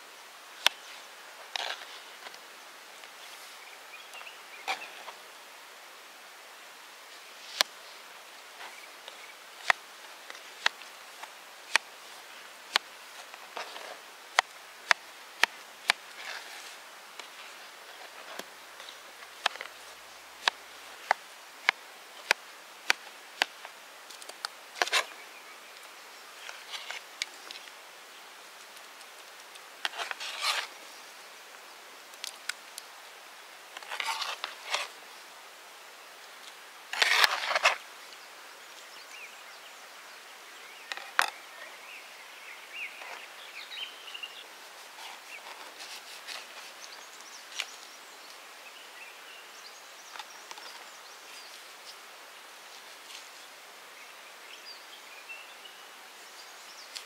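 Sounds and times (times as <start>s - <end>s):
rustling and handling noises: 0.5s - 3.6s, 7.1s - 31.0s, 33.7s - 35.1s, 36.2s - 38.9s, 44.6s - 48.4s, 50.0s - 53.6s.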